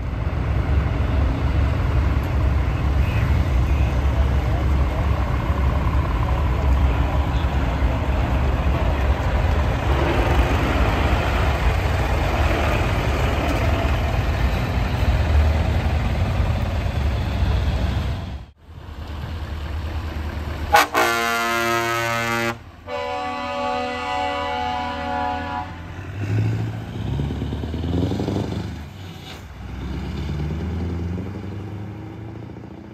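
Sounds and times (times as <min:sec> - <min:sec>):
diesel trucks idling: 0:00.0 - 0:28.0
truck driving off: 0:00.0 - 0:32.9
truck air horn blasts: 0:20.7 - 0:25.9.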